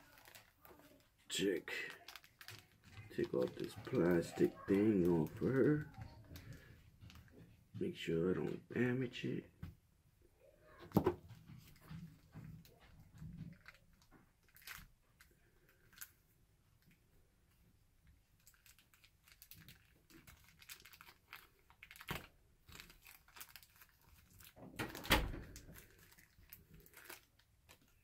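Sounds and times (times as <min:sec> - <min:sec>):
plastic crinkling and clicking: 0:00.0 - 0:07.5, 0:10.8 - 0:16.2, 0:16.8 - 0:28.0.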